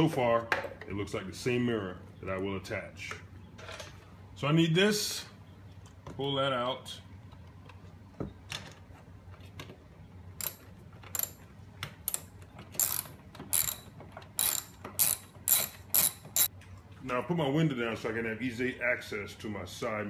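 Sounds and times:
ratchet wrench rasping: 10.4s - 11.4s, 12.1s - 16.5s.

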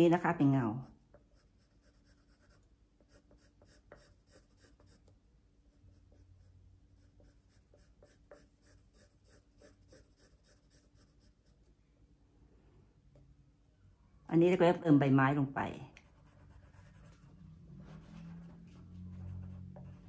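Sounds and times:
pencil scratching on paper: 0.6s - 11.7s, 16.0s - 20.0s.

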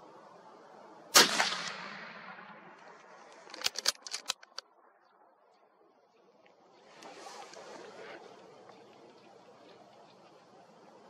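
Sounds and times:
rifle shot with echo: 1.1s - 3.8s
sharp clicks: 1.2s - 4.6s.

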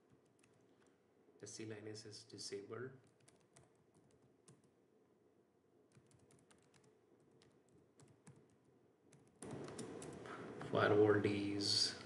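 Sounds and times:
faint keyboard typing: 0.0s - 1.0s, 3.0s - 4.8s, 5.9s - 10.8s.

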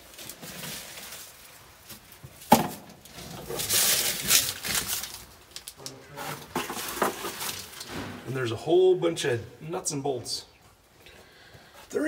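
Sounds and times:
rustling and scraping in box: 0.0s - 2.4s, 3.0s - 5.2s, 6.1s - 8.1s.

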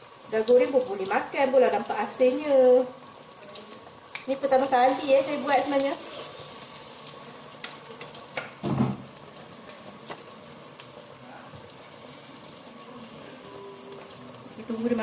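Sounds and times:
food deep-frying in oil: 0.0s - 15.0s
thump: 8.6s - 9.0s.

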